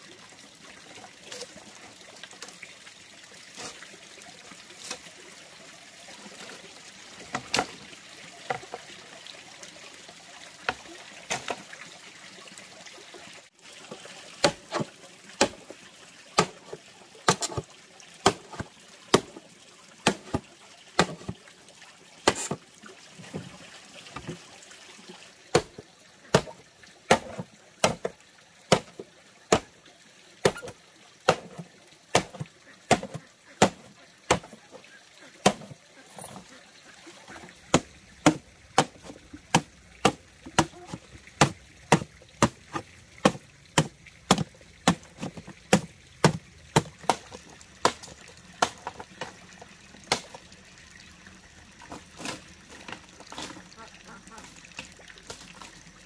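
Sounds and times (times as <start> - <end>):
machete chopping bamboo: 14.4 - 15.6, 16.4 - 16.6, 17.3 - 17.6, 18.2 - 19.3, 20.0 - 20.4, 21.0 - 21.4, 22.2 - 22.6, 25.5 - 28.1, 28.7 - 29.7, 30.4 - 30.7, 31.3 - 34.6, 35.4 - 35.7, 37.7 - 49.3.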